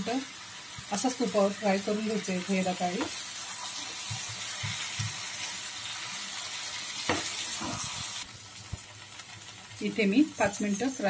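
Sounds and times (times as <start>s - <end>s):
food sizzling in a pan: 0.0s - 11.0s
spatula scraping and knocking pan: 2.9s - 5.5s, 7.0s - 8.9s.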